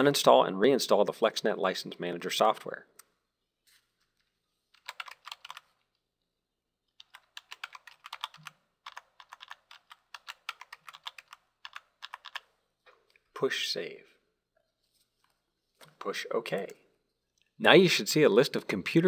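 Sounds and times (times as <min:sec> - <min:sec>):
computer keyboard typing: 0:04.8 - 0:05.8, 0:06.9 - 0:12.6.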